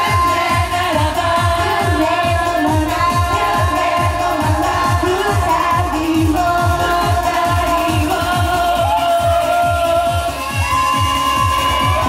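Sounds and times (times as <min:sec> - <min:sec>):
pop backing track with kick drum: 0:00.0 - 0:12.0
women singing into microphones: 0:00.0 - 0:12.0.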